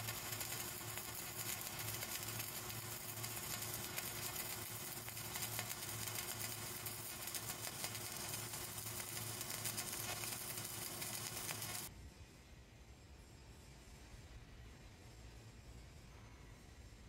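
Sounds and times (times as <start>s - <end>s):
welding arc crackling: 0.0s - 11.9s.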